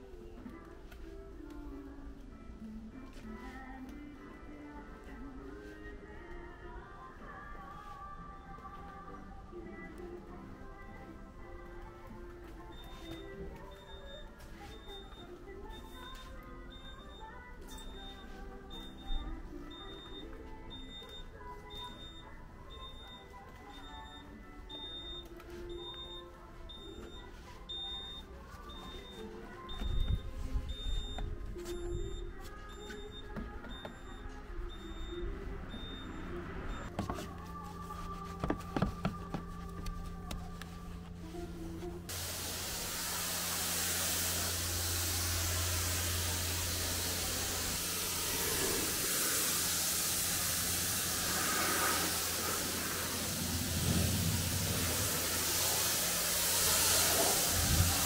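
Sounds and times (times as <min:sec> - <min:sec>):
short electronic beeps: 0:12.7 - 0:37.0
pressure washer spraying: 0:42.1 - 0:58.0
pump humming: 0:42.1 - 0:58.0.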